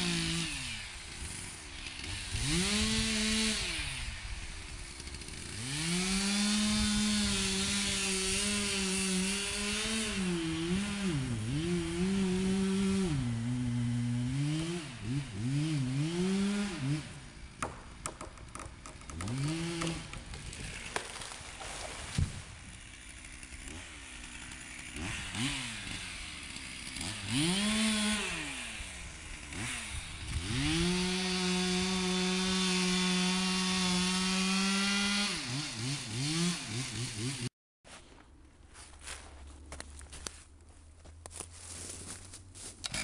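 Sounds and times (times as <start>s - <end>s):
chainsaw cutting tree: 0.0s - 37.5s, 41.8s - 43.0s
tree cracking and falling: 18.1s - 25.1s.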